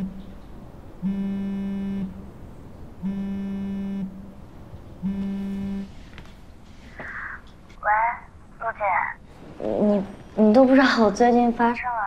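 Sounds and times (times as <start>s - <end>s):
mobile phone buzzing: 1.0s - 2.2s, 3.0s - 4.2s, 5.0s - 6.0s.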